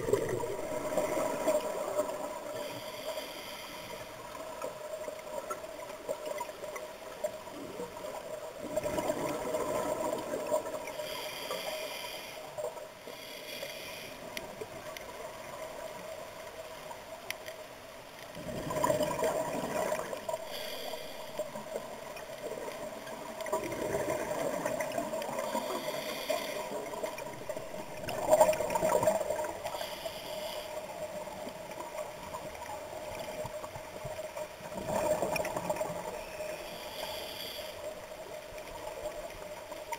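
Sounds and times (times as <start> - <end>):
regulator hissing inhalations: 2.5 - 4.2, 10.9 - 14.3, 20.4 - 21.6, 25.4 - 26.8, 29.7 - 30.8, 36.5 - 37.9
bubbles gurgling underwater: 18.4 - 20.4.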